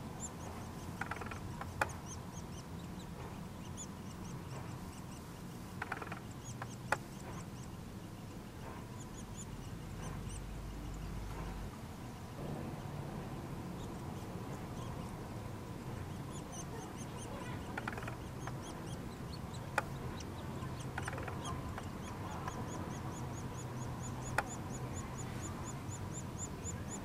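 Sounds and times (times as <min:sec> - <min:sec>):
nestlings chirping: 0:00.0 - 0:27.0
sharp clicks: 0:00.8 - 0:02.2, 0:05.7 - 0:07.5, 0:16.3 - 0:23.0.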